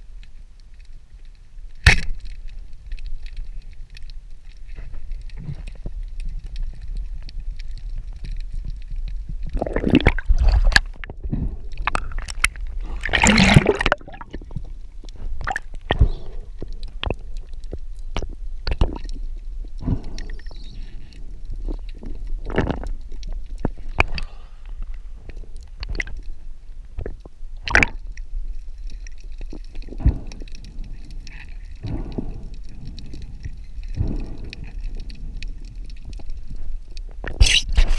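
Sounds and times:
underwater low rumble: 0.0s - 37.9s
underwater clicks and knocks: 1.7s - 26.3s, 27.0s - 37.9s
gurgling water rushes: 9.4s - 14.7s, 15.4s - 17.2s, 27.6s - 28.0s.

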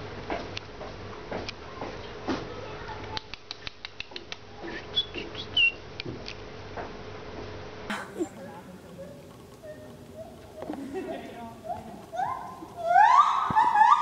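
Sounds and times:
small animal squeaking: 9.0s - 10.8s, 11.6s - 14.0s.

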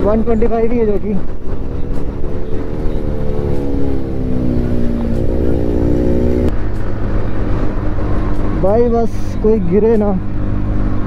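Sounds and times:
motorbike engine drone: 0.0s - 8.7s.

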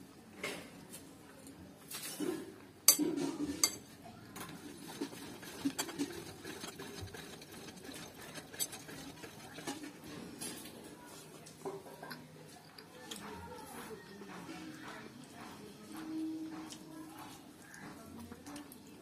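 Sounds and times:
metal spoon clinking on bowl: 2.9s - 3.9s
fingers mixing rice: 2.9s - 11.6s, 12.2s - 19.0s.

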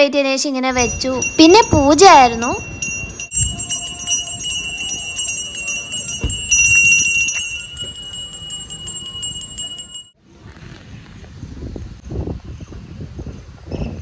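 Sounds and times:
hand bell ringing rapidly: 0.8s - 10.2s.

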